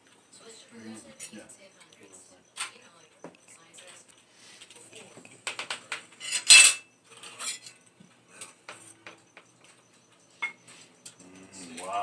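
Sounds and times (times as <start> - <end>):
cutlery clinking on plates: 5.5 - 7.8, 10.4 - 11.9.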